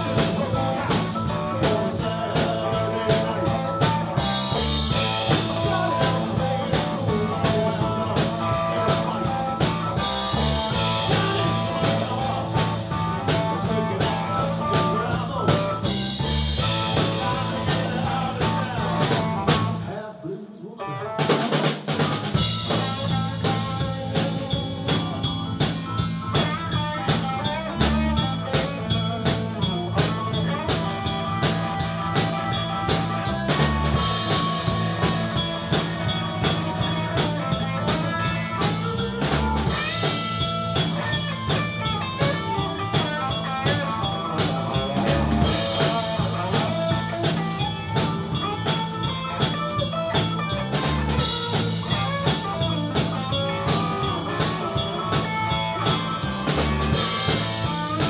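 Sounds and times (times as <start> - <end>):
blues band playing: 0.0 - 58.0.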